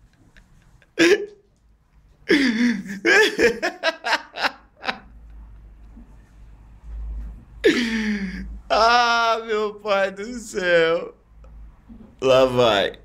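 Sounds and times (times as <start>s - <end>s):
man laughing: 0.2s - 1.4s, 2.3s - 5.4s
person speaking: 2.3s - 5.0s, 7.6s - 11.2s, 12.1s - 13.0s.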